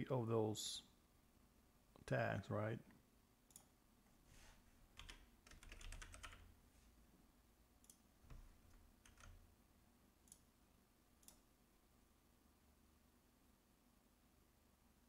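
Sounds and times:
faint keyboard typing: 4.9 - 6.6, 7.8 - 9.5.

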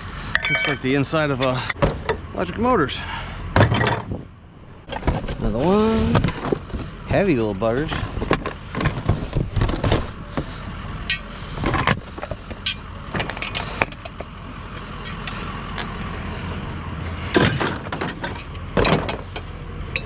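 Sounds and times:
steady low rumble: 0.0 - 20.0
metal knocks and clanks: 3.6 - 4.3, 17.3 - 20.0.

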